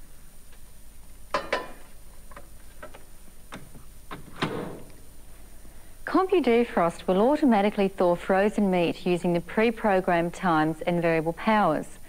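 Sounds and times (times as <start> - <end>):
microwave door shutting: 4.2 - 5.0.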